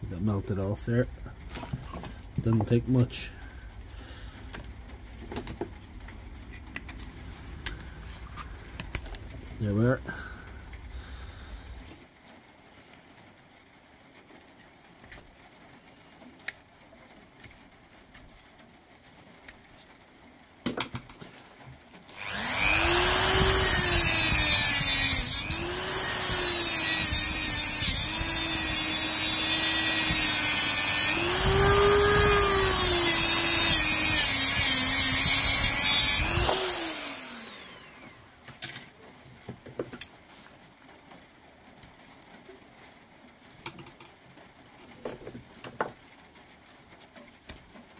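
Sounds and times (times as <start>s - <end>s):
high-speed power tool cutting: 22.1s - 38.2s.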